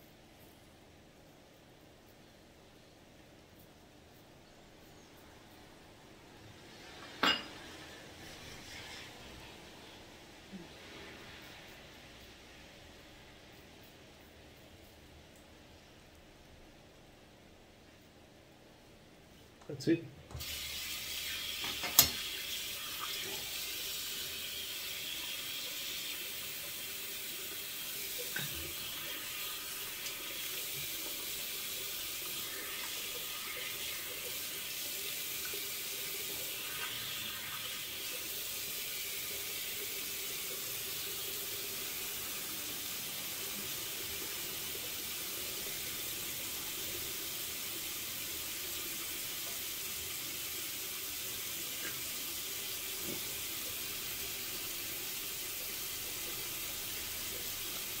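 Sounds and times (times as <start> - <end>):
tap running into a sink: 21.6 - 22.4.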